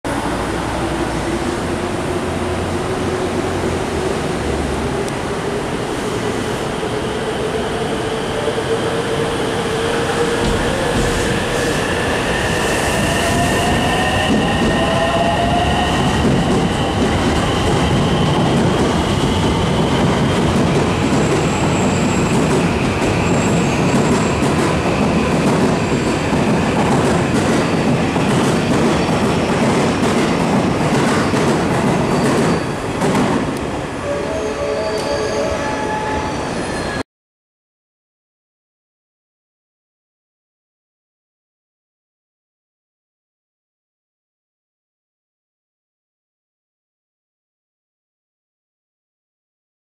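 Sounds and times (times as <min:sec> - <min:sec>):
train wheels clattering on rails: 0:15.9 - 0:33.6.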